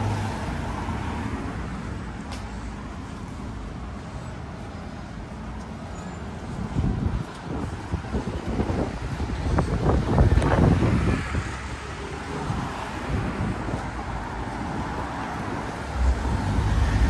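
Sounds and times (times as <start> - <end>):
street traffic noise: 0.0 - 17.0
wind buffeting microphone: 6.5 - 17.0
car passing close by: 14.6 - 17.0.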